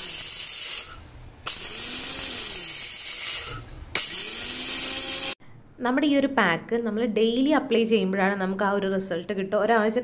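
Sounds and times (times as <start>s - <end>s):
mixer grinder motor whining: 0.0s - 5.4s.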